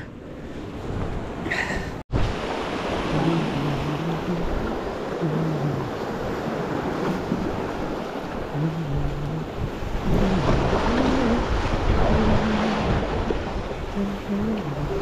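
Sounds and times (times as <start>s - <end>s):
ocean surf washing among boulders: 0.0s - 15.0s
wind buffeting microphone: 0.7s - 15.0s.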